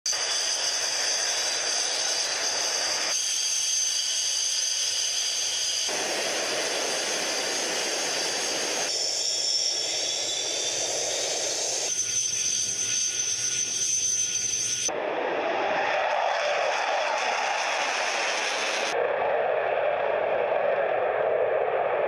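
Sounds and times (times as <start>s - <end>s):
jet engines whining and roaring: 0.1s - 19.0s.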